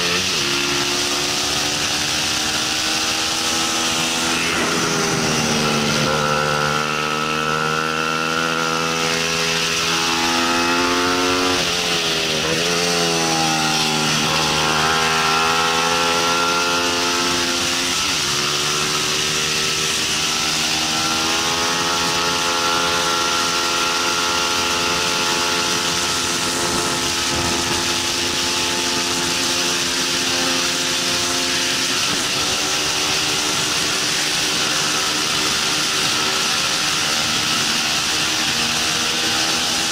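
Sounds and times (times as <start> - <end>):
motorcycle engine running hard: 0.0 - 39.9
wind rushing: 3.2 - 7.2.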